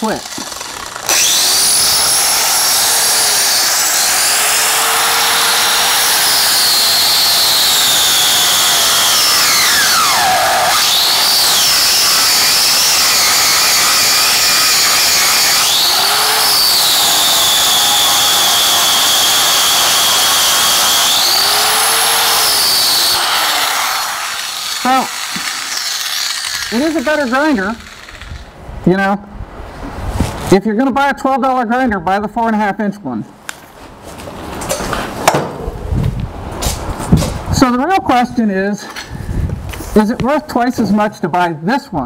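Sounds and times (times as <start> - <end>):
angle grinder grinding steel: 0.0 - 28.6.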